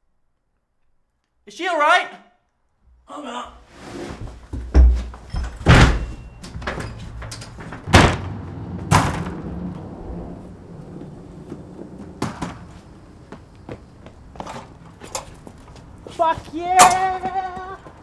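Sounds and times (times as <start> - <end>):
screen door banging: 4.4 - 13.4
door rattling: 4.6 - 13.2.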